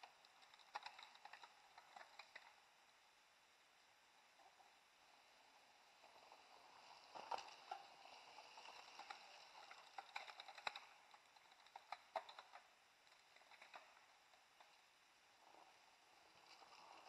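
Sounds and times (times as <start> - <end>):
bikes clicking and rattling on dirt: 0.0 - 2.5, 7.1 - 14.0.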